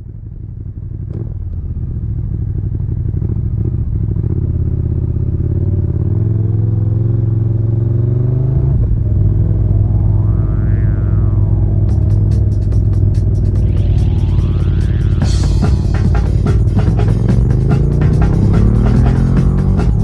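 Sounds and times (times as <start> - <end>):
motorcycle engine accelerating: 0.0 - 20.0.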